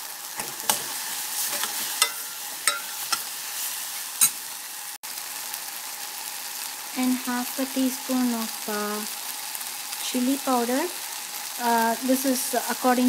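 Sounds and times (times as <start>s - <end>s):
masala sizzling in pot: 0.0s - 13.0s
spoon clinking against pot: 1.5s - 3.3s, 4.2s - 4.4s.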